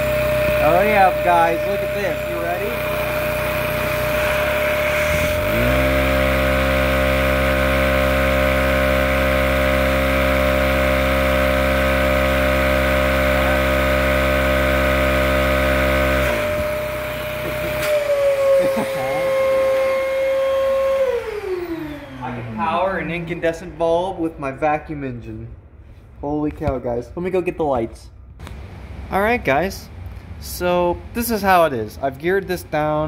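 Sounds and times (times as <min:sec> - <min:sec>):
toy engine buzzing hum: 0:00.0 - 0:22.2
vacuum cleaner whine: 0:00.0 - 0:22.9.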